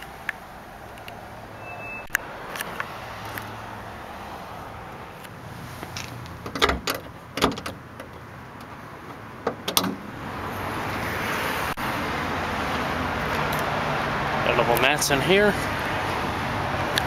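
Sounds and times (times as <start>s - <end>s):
car trunk lid clicks and knocks: 6.4s - 8.2s, 9.4s - 10.1s.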